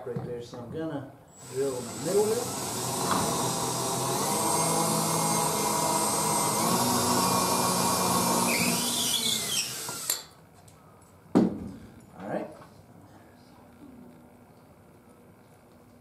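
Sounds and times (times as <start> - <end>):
cordless drill boring wood: 1.3 - 10.3.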